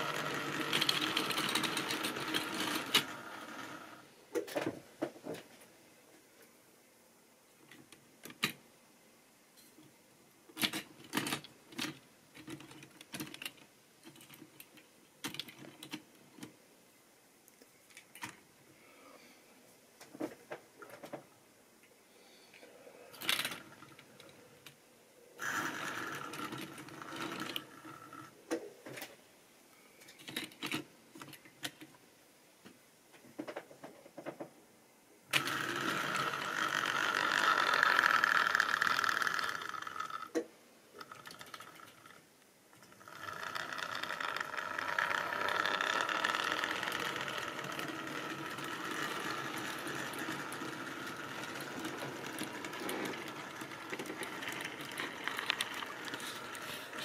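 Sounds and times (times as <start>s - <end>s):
model train wheels rattling on rails: 0.0s - 4.0s, 23.1s - 24.4s, 25.4s - 28.3s, 35.3s - 40.4s, 41.0s - 42.2s, 42.8s - 57.0s.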